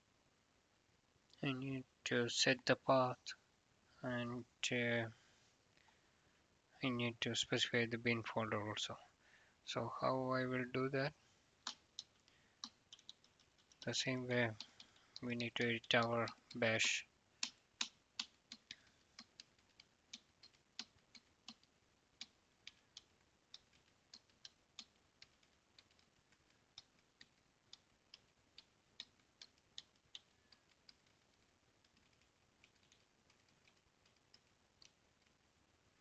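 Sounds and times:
keyboard keys clicking: 11.7 - 16.6.

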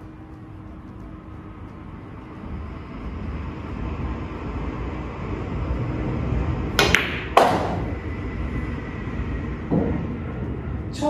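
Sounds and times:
low room hum: 0.0 - 11.0
pool cue and balls clicking: 6.7 - 8.0
pool balls clacking: 6.8 - 8.0.

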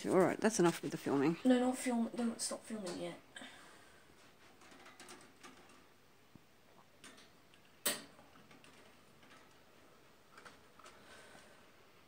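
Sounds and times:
wire birdcage clicking and rattling: 4.6 - 5.8.

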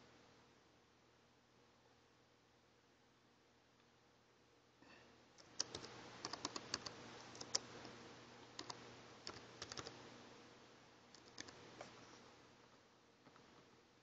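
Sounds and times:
keyboard typing: 5.4 - 7.7, 8.6 - 10.0, 11.1 - 11.6.

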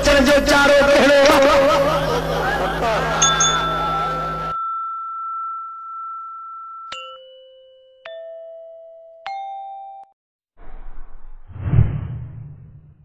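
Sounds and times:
held chime tone: 3.2 - 8.4
struck chime dings: 3.2 - 8.4
whoosh ending in deep thump: 10.6 - 13.0.

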